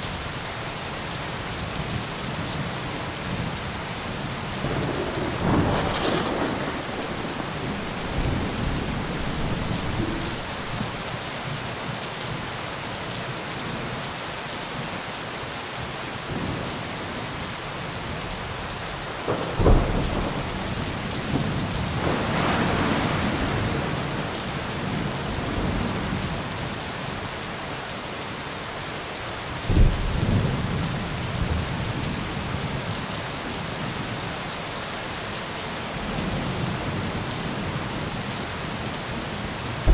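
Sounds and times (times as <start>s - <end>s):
steady rain: 0.0s - 39.9s
rolling thunder: 4.2s - 11.2s, 19.0s - 26.2s
sharp thunderclap: 4.6s - 11.2s, 19.3s - 25.0s.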